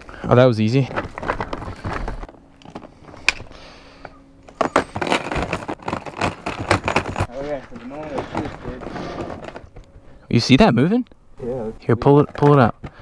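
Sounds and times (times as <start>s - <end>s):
metal chain rattling on plastic: 4.5s - 7.3s, 7.9s - 9.7s.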